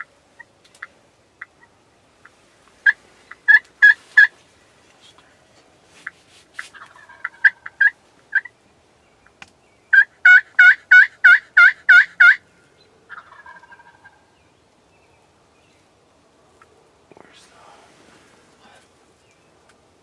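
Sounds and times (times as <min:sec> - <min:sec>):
turkey yelping: 0:02.8 - 0:04.3, 0:06.8 - 0:08.5, 0:09.9 - 0:12.4, 0:13.1 - 0:14.3.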